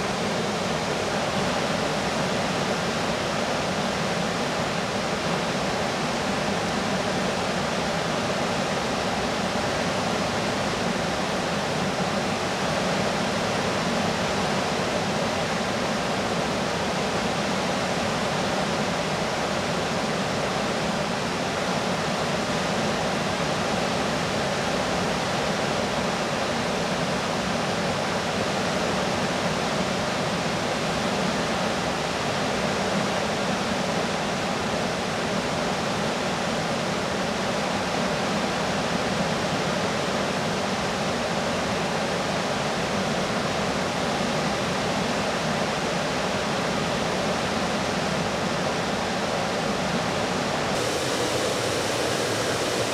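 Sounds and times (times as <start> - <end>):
river rapids rushing: 48.5 - 52.9.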